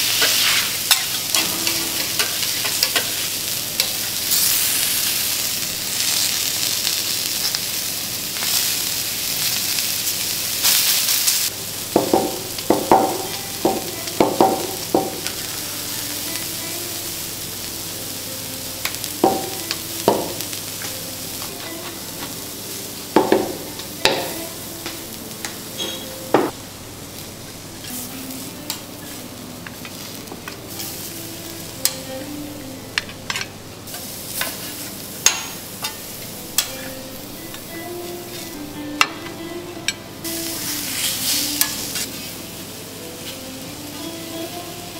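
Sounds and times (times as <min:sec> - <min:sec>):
vegetables sizzling on griddle: 0:00.0 - 0:44.9
spatulas clinking on griddle: 0:00.2 - 0:04.6, 0:25.8 - 0:26.2, 0:33.0 - 0:37.6.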